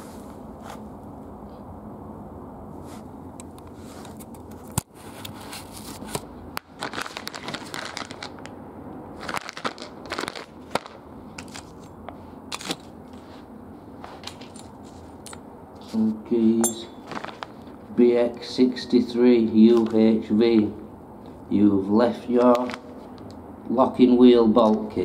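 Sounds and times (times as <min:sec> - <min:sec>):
plastic bag crinkling: 0:05.8 - 0:08.5, 0:09.2 - 0:11.8, 0:17.0 - 0:17.9, 0:22.4 - 0:23.0.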